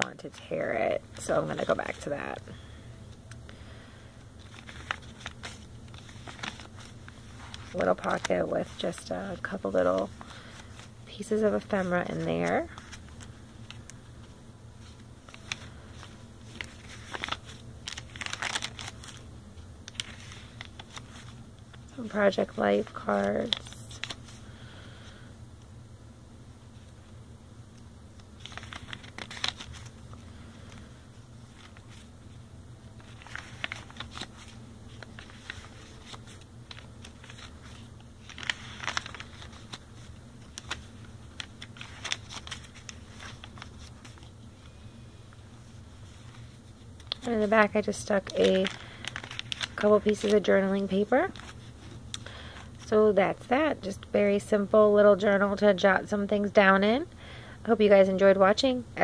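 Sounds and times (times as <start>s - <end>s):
paper pages rustling: 4.2s - 19.3s, 19.9s - 24.4s, 28.2s - 32.4s, 33.0s - 44.8s, 45.6s - 52.8s.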